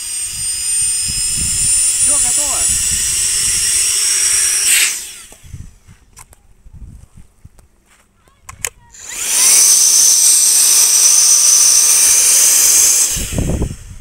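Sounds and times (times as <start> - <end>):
electric pump whirring: 0.0 - 5.9, 8.9 - 14.0.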